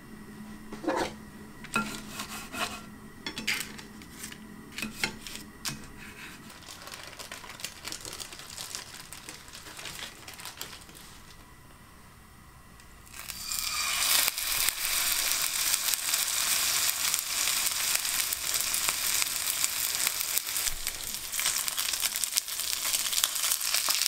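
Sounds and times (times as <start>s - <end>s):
utensil scraping against a dish: 0.8s - 6.4s.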